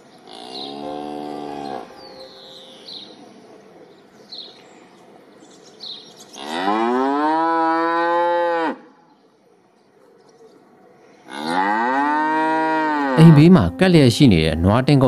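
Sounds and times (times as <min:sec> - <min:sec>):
cow mooing: 0:00.3 - 0:02.0, 0:06.4 - 0:08.8, 0:11.3 - 0:13.8
faint high chirps: 0:02.0 - 0:03.4.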